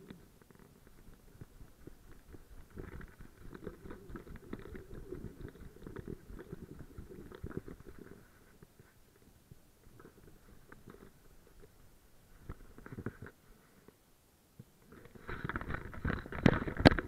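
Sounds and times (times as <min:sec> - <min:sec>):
rustling camera jostling: 0:00.0 - 0:09.0, 0:14.8 - 0:17.0.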